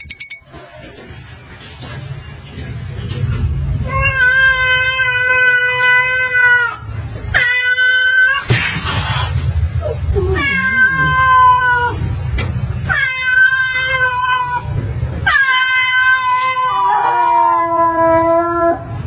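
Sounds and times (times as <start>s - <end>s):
low growling rumble: 1.1s - 7.3s, 8.8s - 12.9s
cat yowling: 9.8s - 12.0s, 12.9s - 19.0s.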